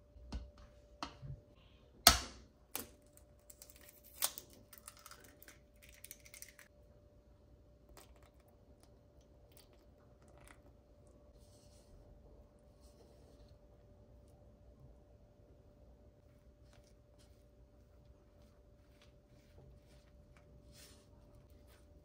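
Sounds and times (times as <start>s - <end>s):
eggshell crackling: 2.7s - 6.7s.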